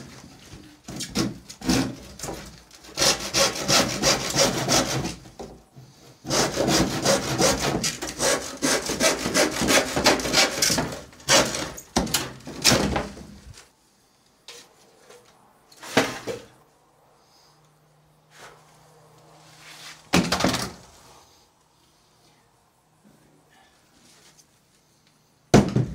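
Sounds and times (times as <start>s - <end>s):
handsaw cutting wood: 1.2s - 5.3s, 6.2s - 11.8s.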